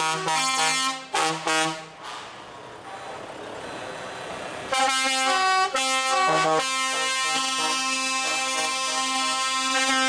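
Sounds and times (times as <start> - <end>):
musical air horn playing a tune: 0.0 - 1.9, 4.7 - 10.0
truck passing close by: 0.7 - 7.9.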